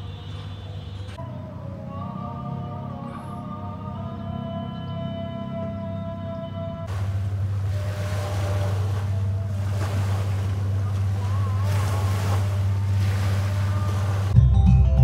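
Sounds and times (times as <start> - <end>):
wind: 0.0 - 15.0
low motor drone: 1.2 - 14.4
small waves washing: 6.9 - 14.4.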